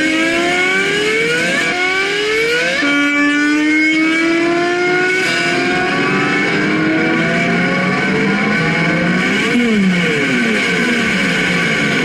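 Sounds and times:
slide bass guitar notes: 2.8s - 12.0s.

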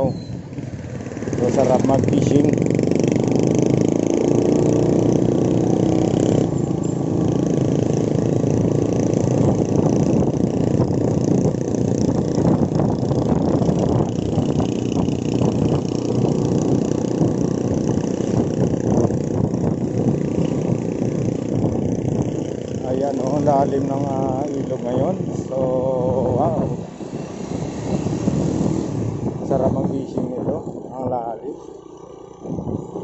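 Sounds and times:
motorcycle engine running: 0.0s - 33.0s
road and riding noise: 0.0s - 33.0s.

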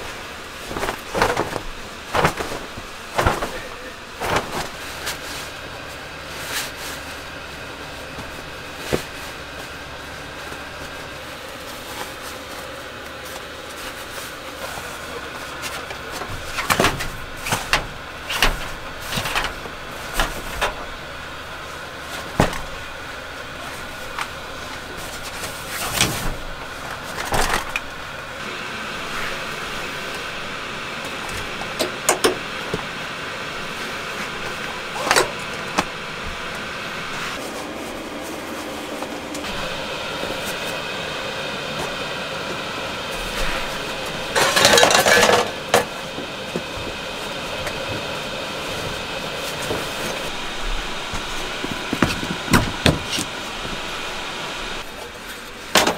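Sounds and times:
steady low hum: 0.0s - 55.9s
knocks and clicks of gear: 31.0s - 32.9s.

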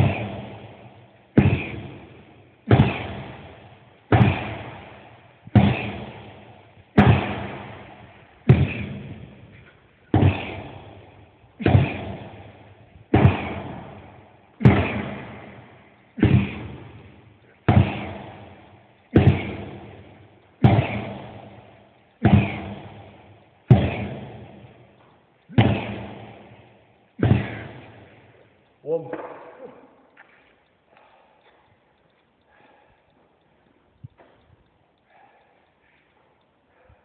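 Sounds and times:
sledgehammer striking tyre: 0.0s - 0.7s, 1.4s - 2.1s, 2.7s - 21.6s, 22.2s - 24.7s, 25.5s - 26.6s, 27.2s - 28.1s.

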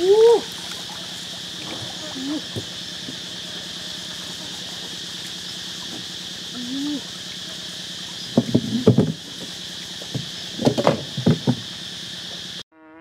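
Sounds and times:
water dripping and trickling: 0.0s - 6.1s
insects droning: 0.0s - 13.0s.

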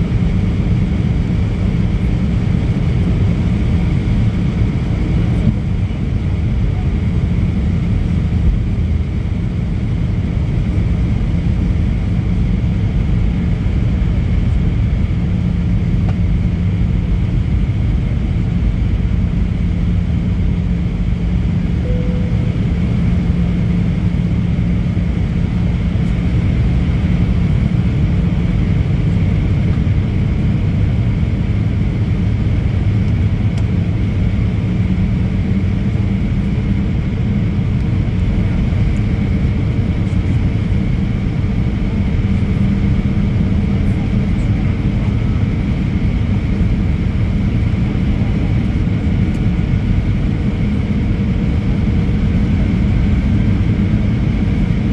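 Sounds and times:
airflow rumble: 0.0s - 54.9s
jet engine drone: 0.0s - 54.9s
low hum: 0.0s - 54.9s
faint high whine: 21.7s - 24.4s.

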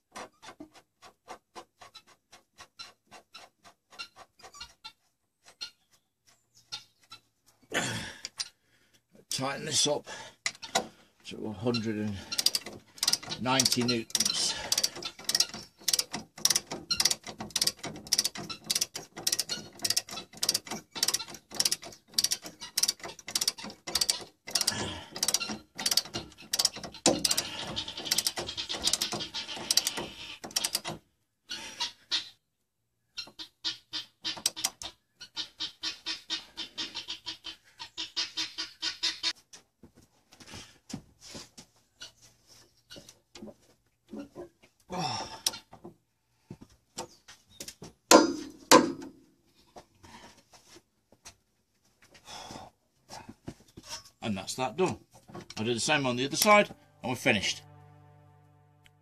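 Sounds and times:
torque wrench ratchet clicking: 12.4s - 27.4s.

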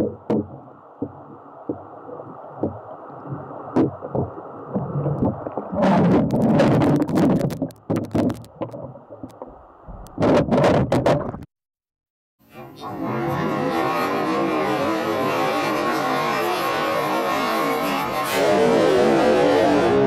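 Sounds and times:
water lapping and sloshing: 0.0s - 11.4s.

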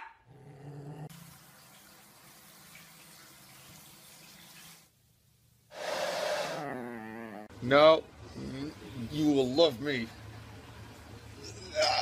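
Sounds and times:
water running into bathtub: 1.1s - 5.0s.

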